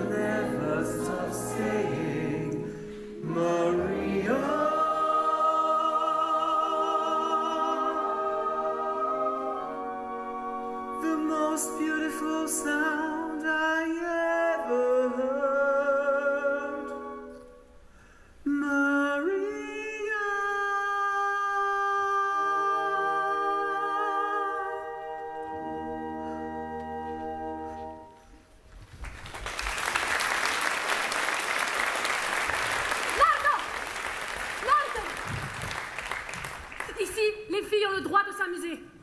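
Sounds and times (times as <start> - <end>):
singers holding long chords: 0.0 - 17.5, 18.4 - 28.2
audience applause: 28.8 - 37.1.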